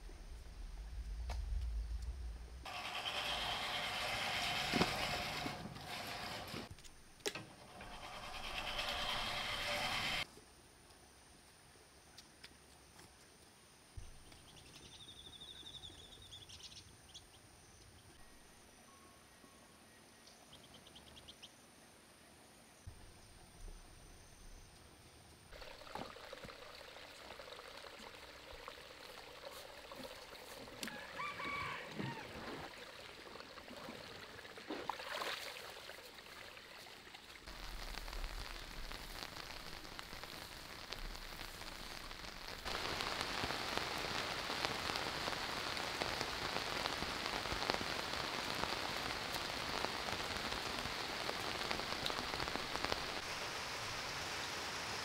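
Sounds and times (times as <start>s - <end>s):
steady rain falling: 7.6s - 10.3s, 37.4s - 55.0s
watering can splashing onto soil: 25.6s - 37.6s.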